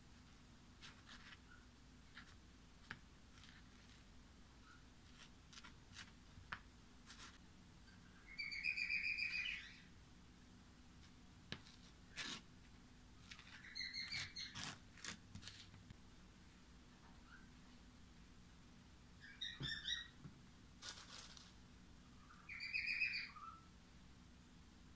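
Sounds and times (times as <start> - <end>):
small bird twittering: 7.9 - 9.9, 13.4 - 14.6, 19.2 - 20.2, 22.2 - 23.7.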